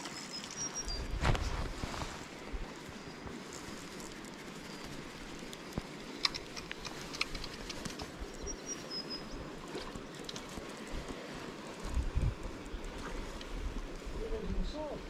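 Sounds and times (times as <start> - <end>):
faint steady hiss: 0.0 - 15.0
light clicks and ticks: 3.2 - 14.1.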